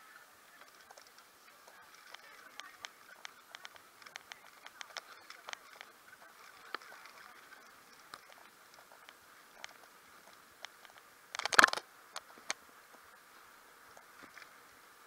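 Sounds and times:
bicycle clicks and rattles: 10.6 - 12.4.

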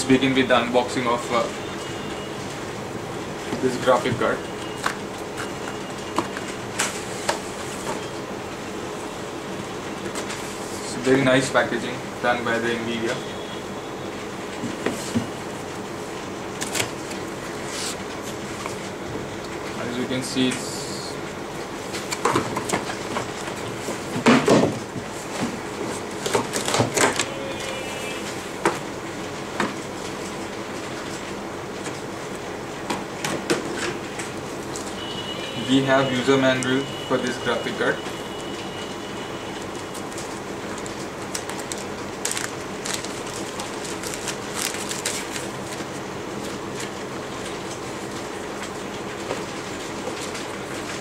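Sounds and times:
steady background hum: 0.0 - 51.0
plastic bags crinkling: 39.7 - 48.2.

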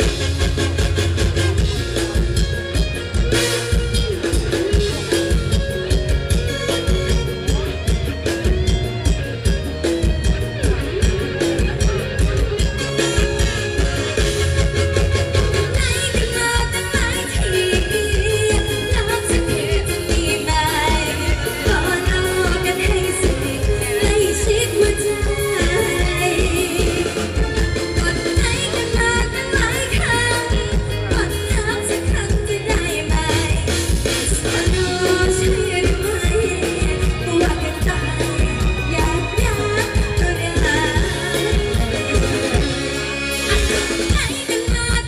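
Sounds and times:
live pop band playing: 0.0 - 45.0
steady drum beat: 0.0 - 45.0
woman singing: 15.6 - 45.0.

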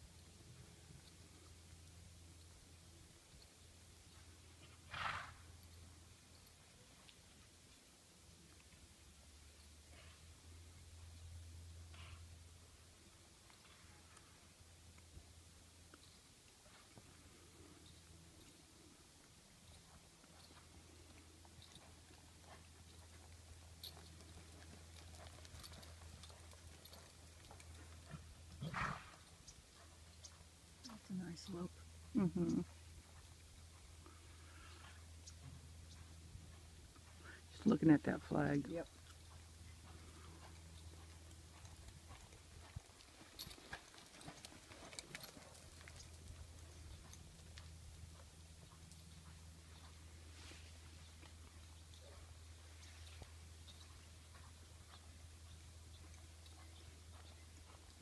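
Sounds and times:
horse snorting: 4.8 - 5.4, 28.1 - 29.2
horse hoofbeats on dirt: 15.9 - 58.0.

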